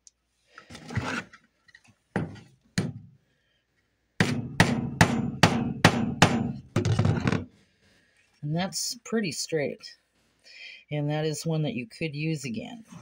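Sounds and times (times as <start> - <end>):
hammer tapping a nail: 4.2 - 6.6.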